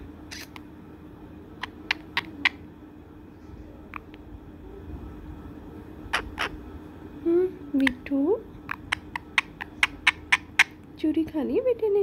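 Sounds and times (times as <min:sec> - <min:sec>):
steady low hum: 0:00.0 - 0:12.0
parakeet squeaking: 0:00.3 - 0:00.6, 0:01.6 - 0:02.7, 0:06.1 - 0:06.6, 0:07.8 - 0:10.8.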